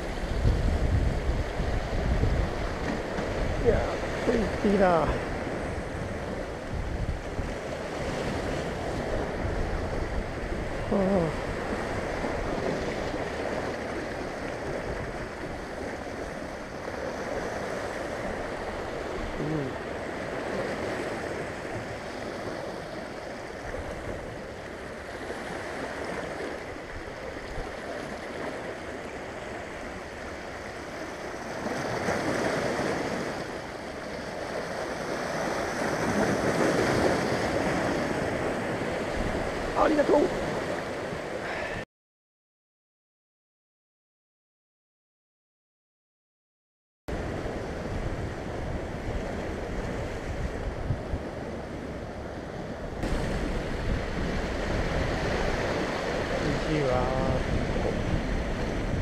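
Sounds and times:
surf breaking on rocky shore: 0.0s - 22.9s, 52.8s - 59.0s.

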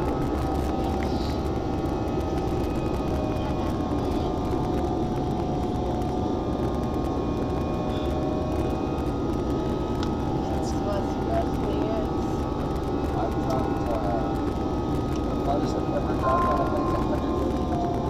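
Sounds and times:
faint steady whining tones: 0.0s - 18.0s
jet engines droning: 0.0s - 18.0s.

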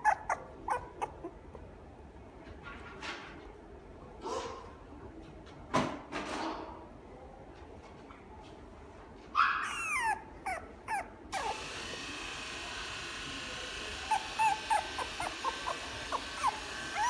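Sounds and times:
puppy high squeaks: 0.0s - 1.4s, 9.4s - 11.6s, 13.9s - 17.0s
puppy whimpering: 0.0s - 1.6s, 9.5s - 11.7s, 13.7s - 17.0s.

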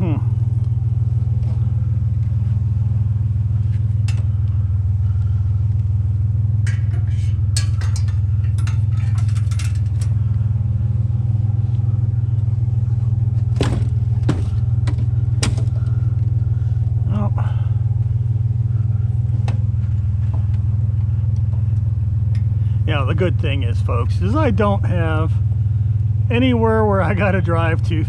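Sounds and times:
truck engine and road noise: 0.0s - 28.0s
clicks and rattles: 6.6s - 10.2s
sharp knocks: 13.5s - 15.8s.

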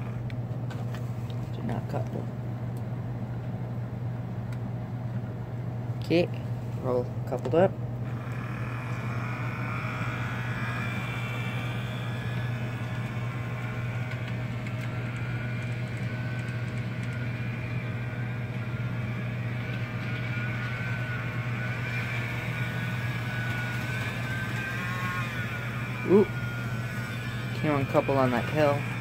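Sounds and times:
gear whine: 0.0s - 0.4s, 8.0s - 29.0s
model train motor hum: 8.0s - 29.0s.

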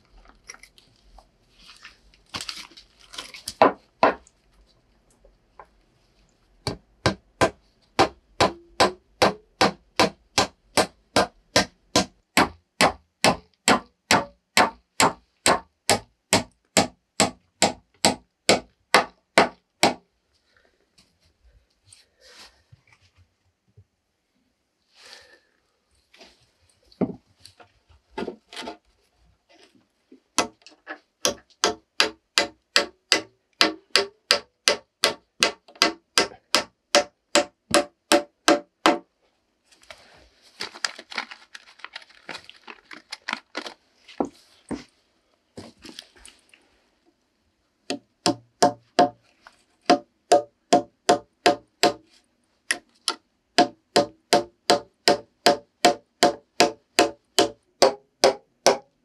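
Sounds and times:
rustling: 0.0s - 3.6s, 24.8s - 31.1s, 39.2s - 47.2s, 49.2s - 49.9s
hammer driving nails into wood: 6.7s - 20.0s, 31.2s - 39.0s, 49.9s - 52.0s, 52.7s - 58.9s.

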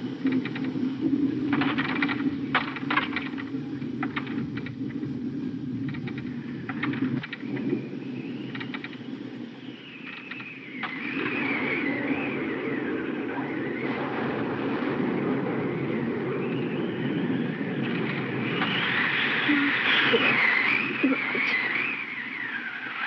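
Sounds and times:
wind and rain rushing: 0.0s - 23.0s
wavering wind whistle: 7.3s - 23.0s.

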